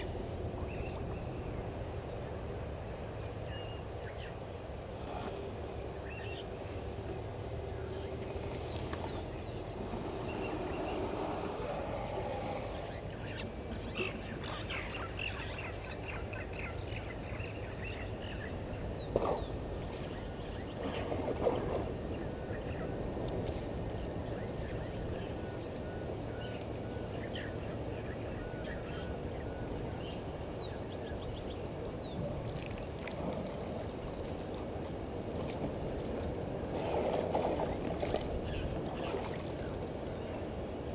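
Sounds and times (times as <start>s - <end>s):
insect chirping: 0.0s - 40.9s
steady hiss: 3.9s - 14.8s.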